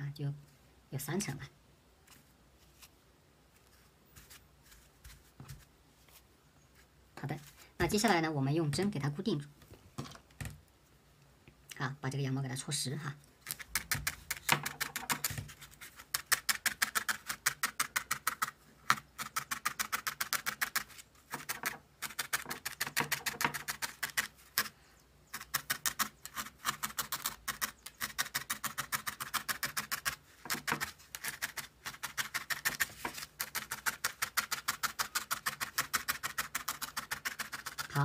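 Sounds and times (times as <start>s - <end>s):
felting needle poking wool: 13.4s - 38.0s.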